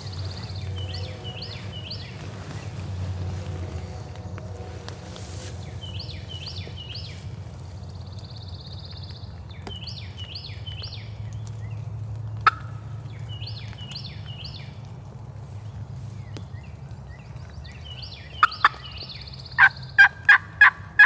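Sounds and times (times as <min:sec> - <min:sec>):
low rumble: 0:00.0 - 0:09.4.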